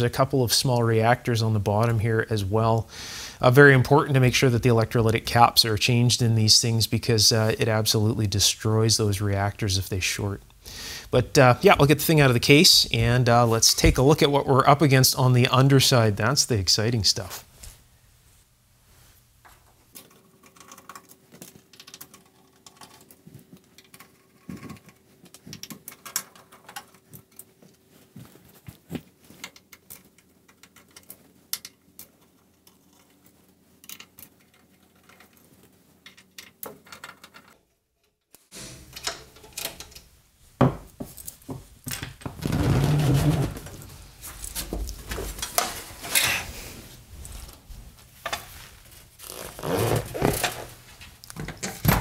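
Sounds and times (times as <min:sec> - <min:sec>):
small metallic clicks and scrapes: 0:19.9 - 0:27.8, 0:29.3 - 0:40.1.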